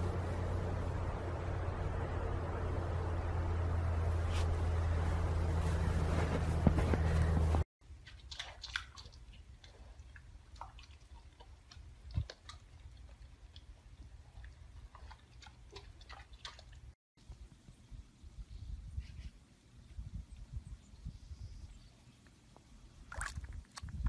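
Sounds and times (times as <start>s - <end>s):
low steady hum: 0.0s - 7.6s
pig chewing: 8.0s - 16.7s.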